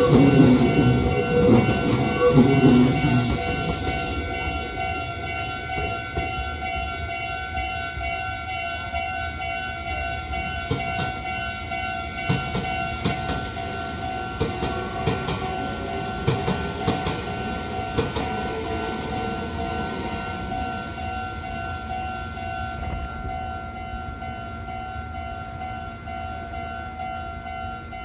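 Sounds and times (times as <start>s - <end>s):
level-crossing alarm ringing: 0.0s - 28.0s
train rumbling: 0.0s - 28.0s
train wheels clicking over rail joints: 10.3s - 22.0s.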